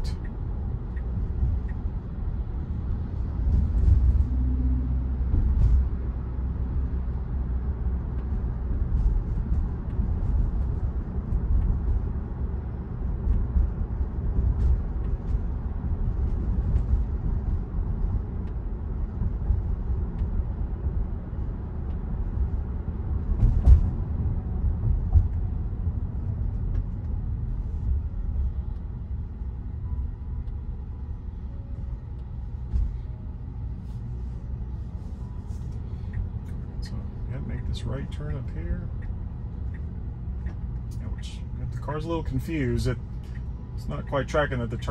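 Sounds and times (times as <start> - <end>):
road and tyre rumble in car cabin: 0.0 - 44.9
thump: 23.4 - 23.9.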